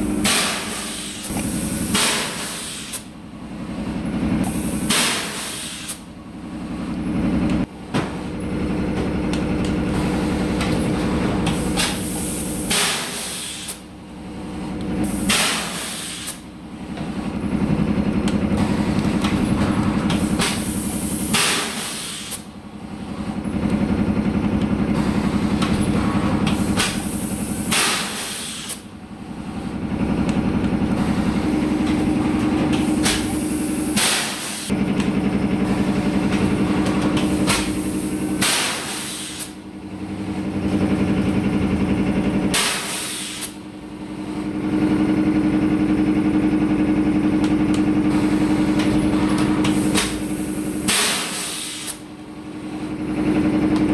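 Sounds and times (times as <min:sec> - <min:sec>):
compressed air hisses: 0:00.5 - 0:01.3, 0:01.9 - 0:03.0, 0:04.5 - 0:06.0, 0:11.9 - 0:13.8, 0:15.1 - 0:16.4, 0:20.6 - 0:22.4, 0:26.6 - 0:28.8, 0:37.7 - 0:39.6, 0:49.8 - 0:52.0
machine hum: 0:28.9 - 0:38.9.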